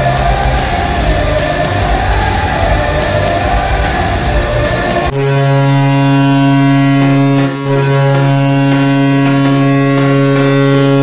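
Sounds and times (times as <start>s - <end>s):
arena goal horn: 5.0s - 11.0s.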